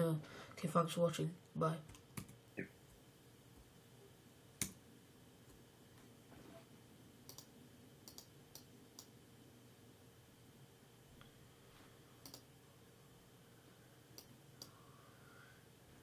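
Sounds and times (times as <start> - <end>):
computer mouse clicks: 7.3 - 9.1, 12.2 - 12.5, 14.2 - 14.8.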